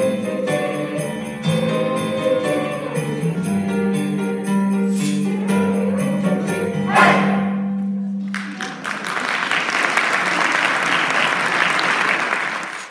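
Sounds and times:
mixed choir holding a chord: 0.0 - 7.8
audience applause: 8.2 - 12.9.

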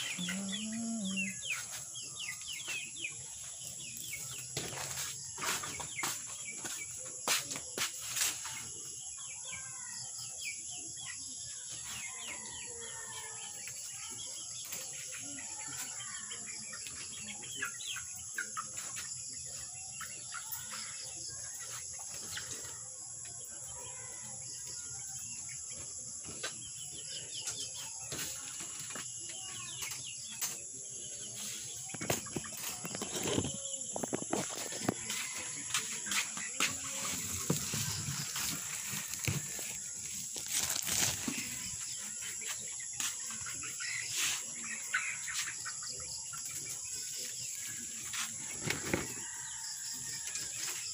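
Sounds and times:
birds chirping: 0.0 - 11.4, 23.7 - 50.0
knocks and rustles of handling: 36.2 - 41.8.

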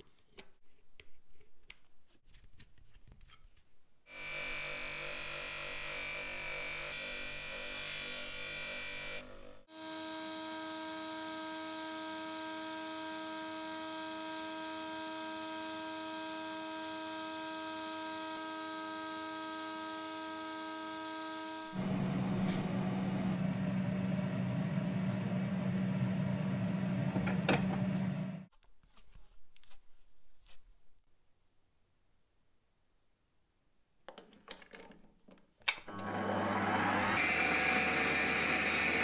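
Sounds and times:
small electric motor humming: 4.1 - 23.4, 35.9 - 39.0
loud machine droning: 9.7 - 28.4, 35.9 - 39.0.

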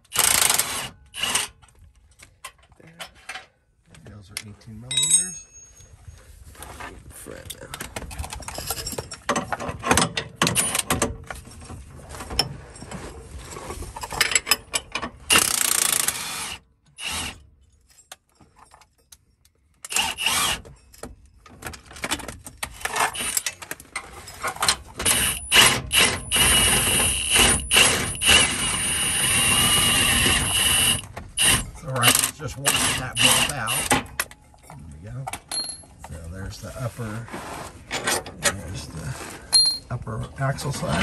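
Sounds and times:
metal-on-metal clatter: 4.9 - 5.8, 7.9 - 12.9
ratchet clicking: 15.3 - 16.2
power tool running: 25.1 - 33.9.

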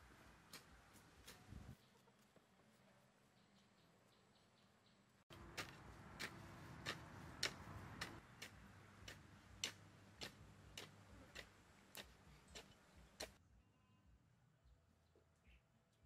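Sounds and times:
hoe chopping soil: 5.3 - 13.4.

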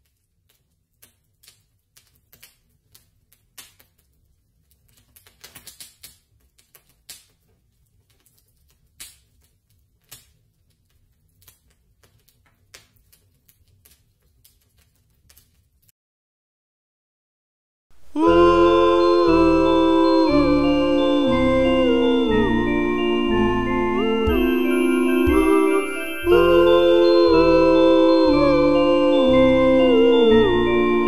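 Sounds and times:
campfire crackling and popping: 0.5 - 15.6.

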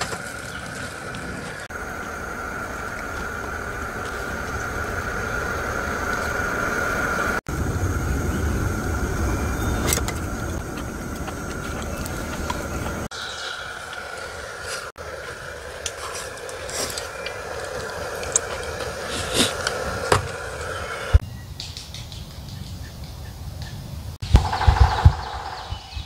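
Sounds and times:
gas stove burner rumble and hiss: 0.1 - 13.1, 13.7 - 21.2.

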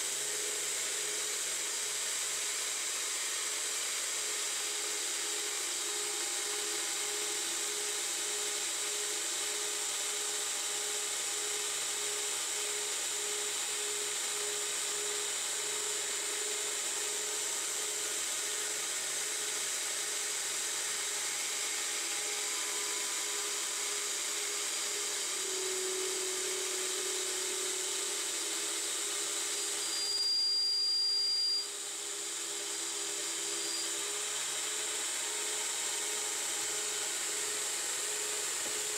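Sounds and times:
metal lathe running: 4.0 - 30.3.

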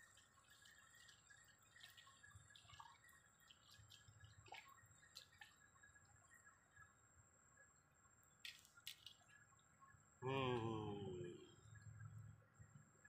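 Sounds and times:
faint high-pitched hum: 0.0 - 13.0
faint ticks: 8.3 - 9.6.

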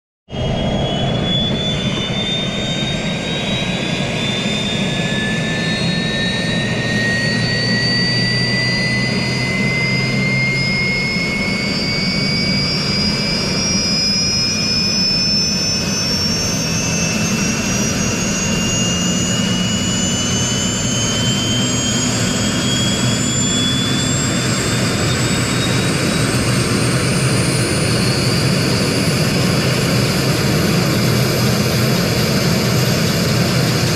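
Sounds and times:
helicopter turbine engine whining: 0.3 - 33.9.

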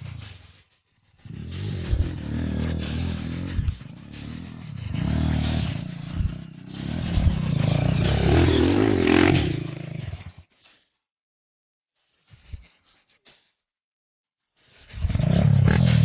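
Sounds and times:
dirt bike engine revving: 1.3 - 10.1, 15.1 - 16.0.

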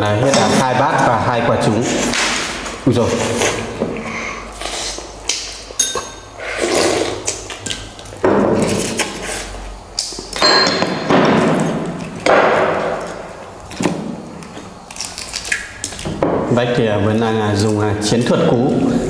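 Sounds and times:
bowls and chopsticks clinking: 5.8 - 6.3, 10.4 - 11.1
noodles being slurped: 6.4 - 7.8.

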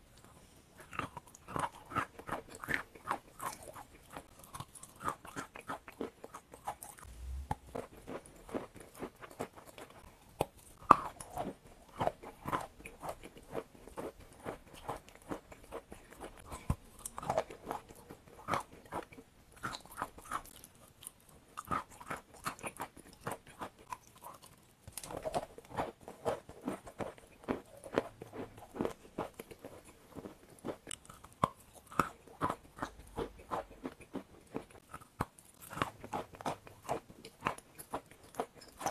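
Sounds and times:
chalk being chewed crunching: 0.1 - 38.9.

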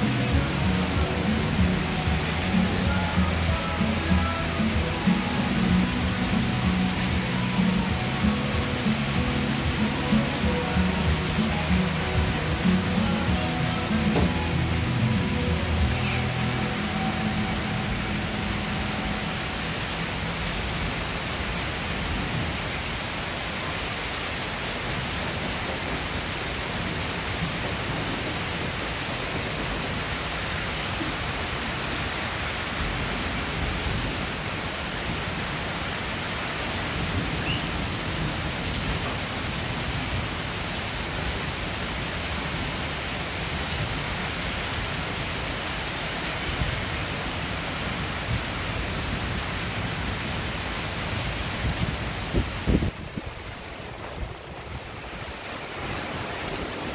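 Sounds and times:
rain on a sheet roof: 0.0 - 56.9.

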